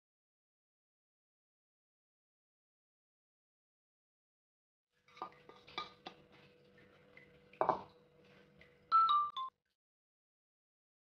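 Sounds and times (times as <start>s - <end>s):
spatula knocking against glass bowl: 7.6s - 7.9s.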